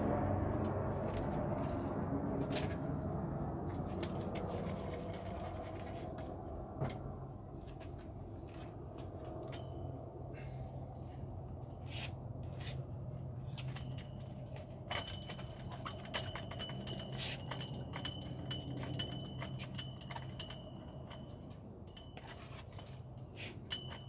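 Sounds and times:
steady low hum: 0.0 - 24.0
hands clicking and scraping windshield: 3.6 - 9.6, 11.6 - 24.0.

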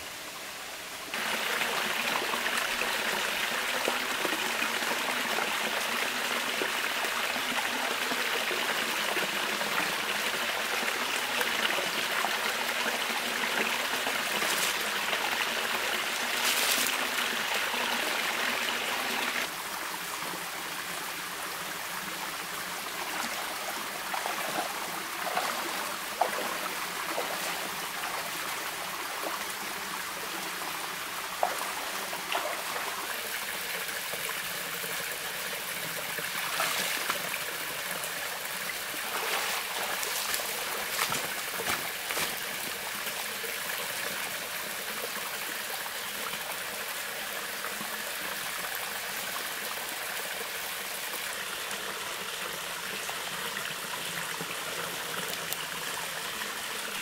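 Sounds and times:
stream trickling over rocks: 1.1 - 57.0
splashes in water: 36.4 - 37.3, 39.0 - 42.5.

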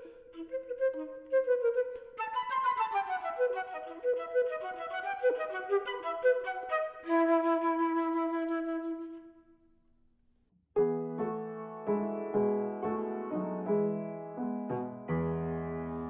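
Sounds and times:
solo flute melody: 0.0 - 9.7
piano chord: 10.8 - 16.0.

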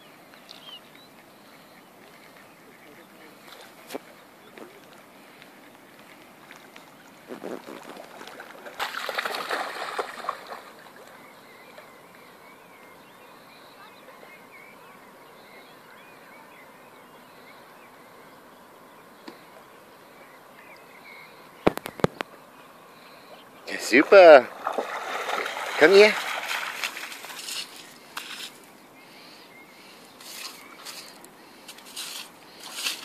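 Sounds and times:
dog splashing through water: 7.4 - 11.2, 24.5 - 27.8.

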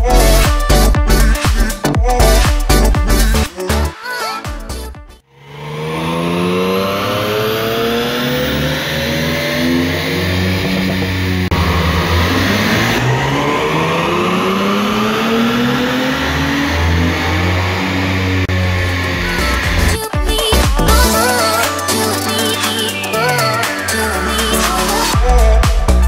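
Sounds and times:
car engine revving: 5.2 - 21.6.

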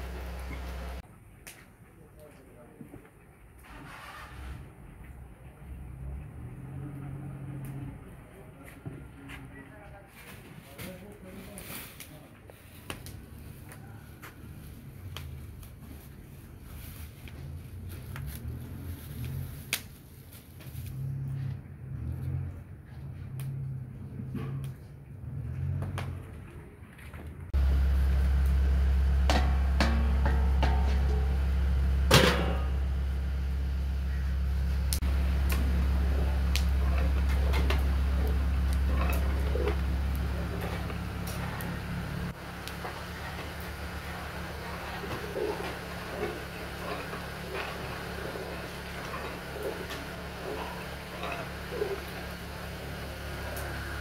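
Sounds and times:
low steady rumble: 0.0 - 1.0, 27.4 - 54.0
steady low hum: 0.0 - 1.0, 27.6 - 54.0.

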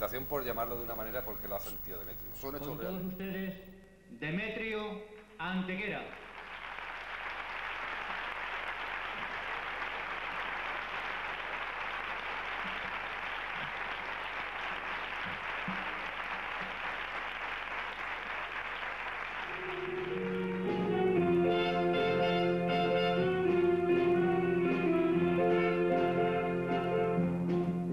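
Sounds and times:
audience applauding: 0.0 - 3.2, 6.1 - 21.1.

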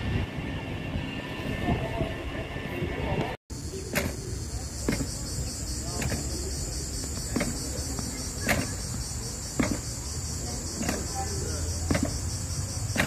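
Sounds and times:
cicadas chorus: 3.5 - 13.0.

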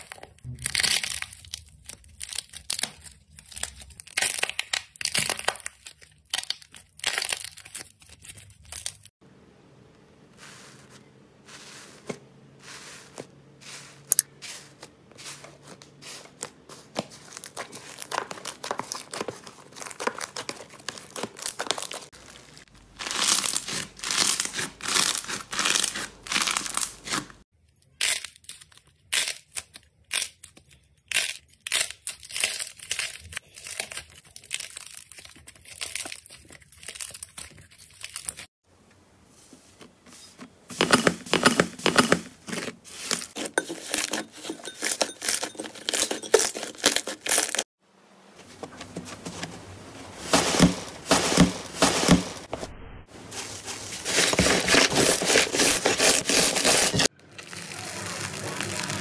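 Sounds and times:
slime crackling and squishing: 0.0 - 9.1, 10.4 - 38.5, 53.2 - 59.0.

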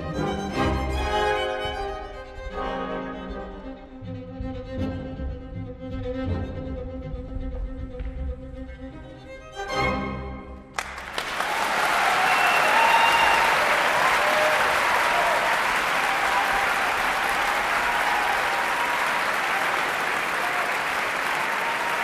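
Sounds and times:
audience applauding: 10.7 - 22.0.

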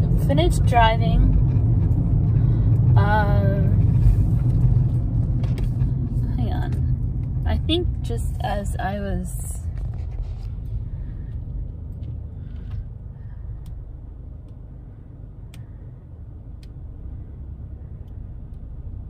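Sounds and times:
car driving rumble: 0.0 - 19.0.

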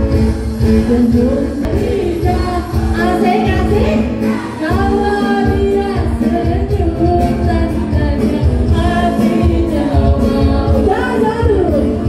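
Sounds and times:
live band music: 0.0 - 12.0
girls singing together: 1.0 - 6.4, 8.6 - 12.0.

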